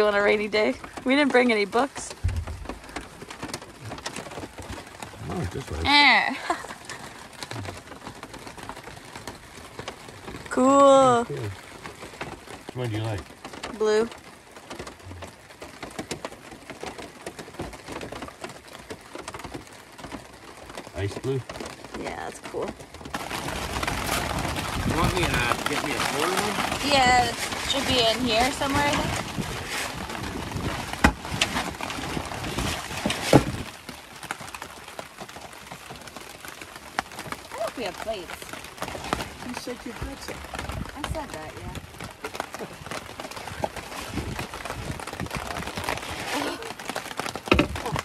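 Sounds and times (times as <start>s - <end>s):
rain on a roof and tarp: 0.0s - 48.0s
items clattering in wooden box: 38.8s - 48.0s.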